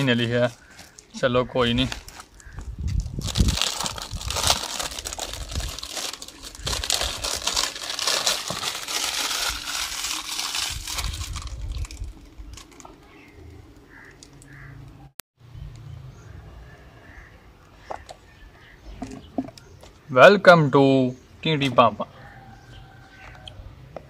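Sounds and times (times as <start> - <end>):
plastic packaging crinkling: 1.8 - 14.4.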